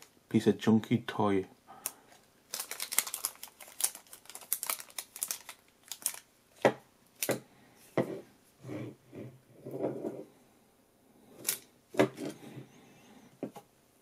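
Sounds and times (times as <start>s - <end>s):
plastic goggles rustling and clicking: 1.8s - 6.2s.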